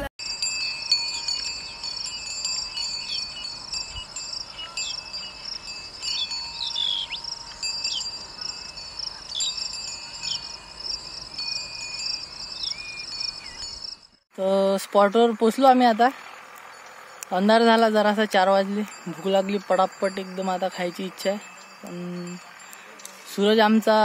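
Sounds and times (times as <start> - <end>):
insects trilling: 0.4 - 14.1.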